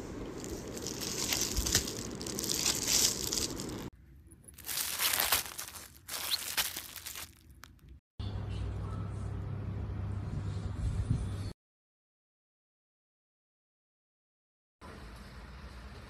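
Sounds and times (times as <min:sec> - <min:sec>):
plastic packaging crinkling: 0:00.4 - 0:03.9, 0:04.5 - 0:07.9.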